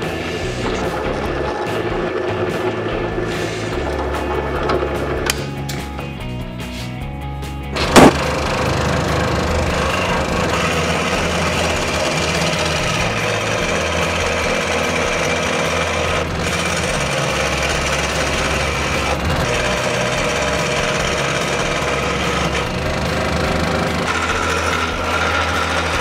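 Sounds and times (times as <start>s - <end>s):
scroll saw cutting wood: 7.8s - 26.0s.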